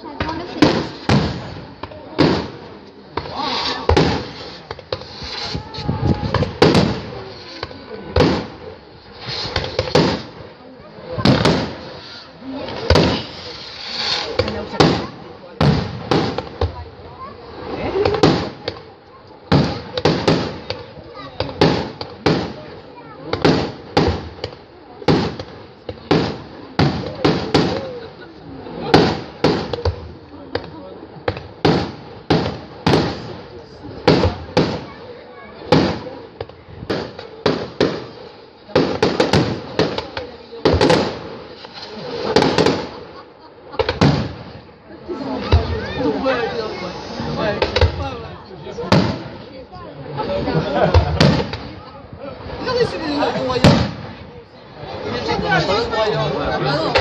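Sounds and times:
fireworks bursting with loud bangs: 0:00.0 - 0:57.0
fireworks crackling: 0:00.0 - 0:57.0
firework shells bursting: 0:00.2 - 0:10.5, 0:35.7 - 0:43.2, 0:50.9 - 0:51.7.

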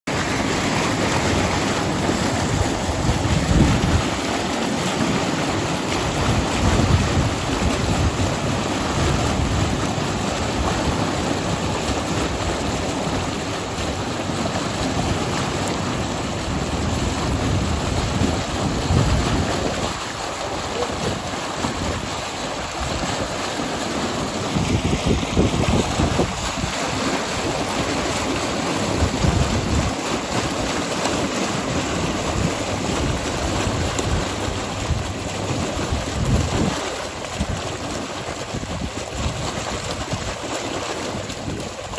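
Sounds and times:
water rushing from hose into pond: 0:00.0 - 0:41.9
wind buffeting microphone: 0:01.0 - 0:04.8, 0:05.8 - 0:11.0, 0:16.3 - 0:23.6, 0:24.2 - 0:30.4, 0:31.7 - 0:40.4.

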